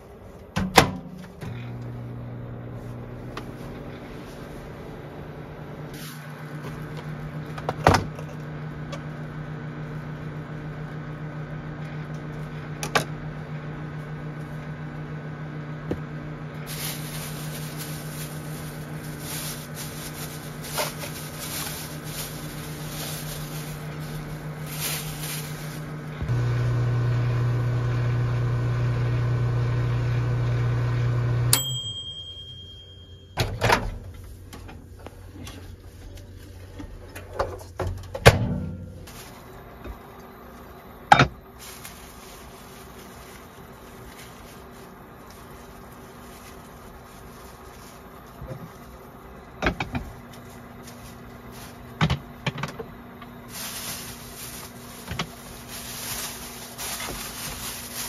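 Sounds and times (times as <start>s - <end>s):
kitchen appliance humming: 1.1s - 33.6s, 38.8s - 58.0s
plastic bag rustling: 5.9s - 6.9s, 16.6s - 26.3s, 39.0s - 39.7s, 41.5s - 49.2s, 50.3s - 52.0s, 53.4s - 58.0s.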